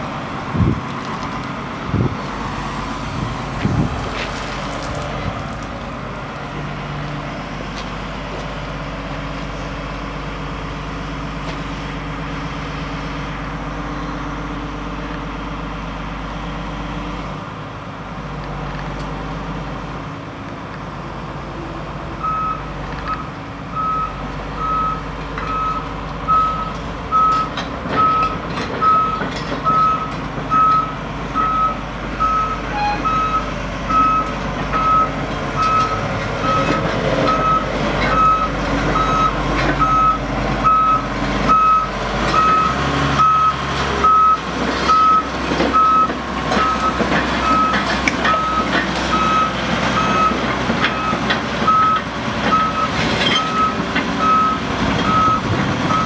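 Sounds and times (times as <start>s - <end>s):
excavator diesel engine running: 0.0s - 56.0s
travel alarm beeping: 23.8s - 28.3s, 28.9s - 36.7s.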